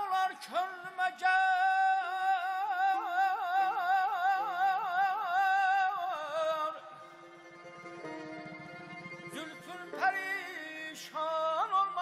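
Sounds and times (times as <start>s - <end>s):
soft instrumental accompaniment: 6.9s - 12.0s.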